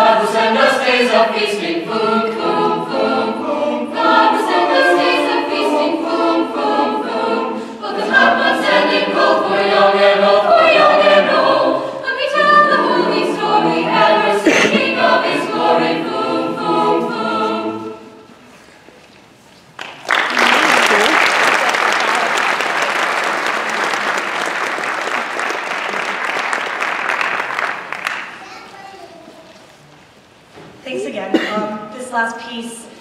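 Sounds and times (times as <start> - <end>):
choir singing in harmony: 0.0 - 18.6.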